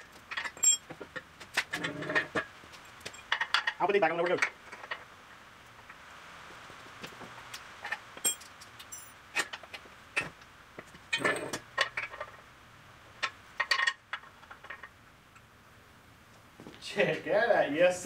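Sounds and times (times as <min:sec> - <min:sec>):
metal parts clinking and rattling: 0:00.3 - 0:01.0, 0:07.8 - 0:09.5.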